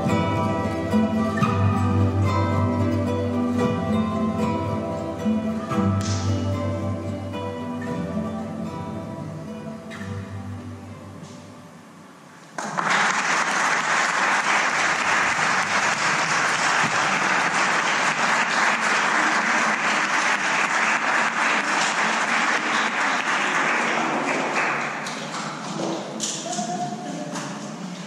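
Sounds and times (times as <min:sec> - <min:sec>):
audience applauding: 0:12.6 - 0:26.1.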